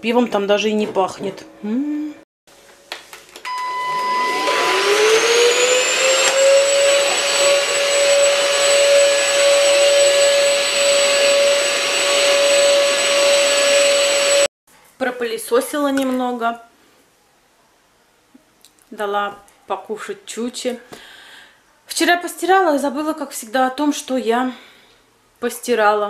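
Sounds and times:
vacuum cleaner motor whine: 3.5 - 14.5.

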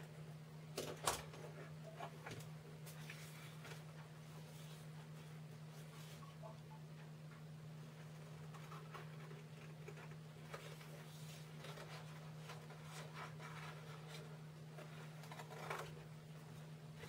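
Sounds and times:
steady low hum: 0.0 - 17.0
paper handling: 8.0 - 16.1
scissors cutting paper: 14.8 - 16.0.

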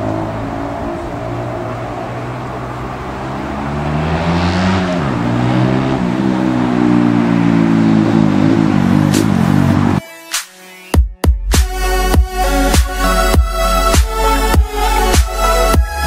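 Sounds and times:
engine accelerating: 0.0 - 10.0.

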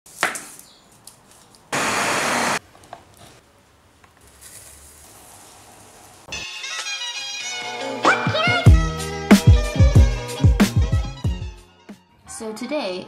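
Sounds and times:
music: 6.3 - 13.0.

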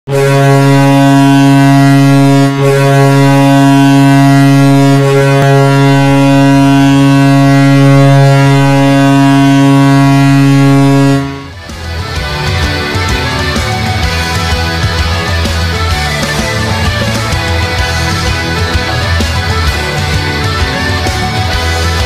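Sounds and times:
air horn blast: 0.1 - 11.9.

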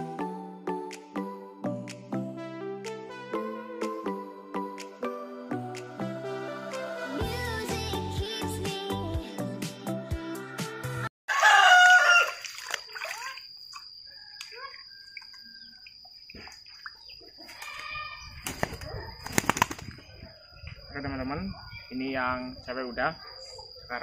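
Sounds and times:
background music: 0.0 - 11.1
rooster crowing: 11.3 - 12.6, 14.1 - 15.9
pigeon wings flapping: 18.4 - 20.0.

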